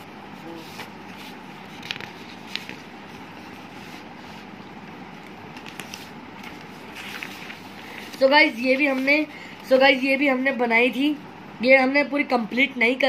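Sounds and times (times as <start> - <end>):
paper rustling: 0.4 - 4.6, 5.2 - 10.2.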